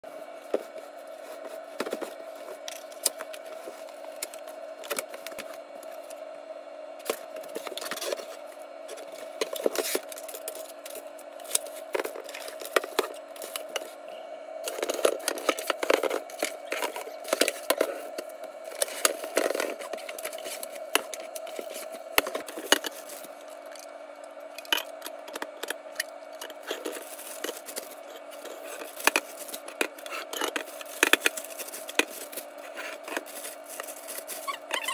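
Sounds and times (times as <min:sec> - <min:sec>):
steady hum: 0:00.0 - 0:34.9
cellophane crinkling: 0:07.0 - 0:14.0, 0:14.6 - 0:34.9.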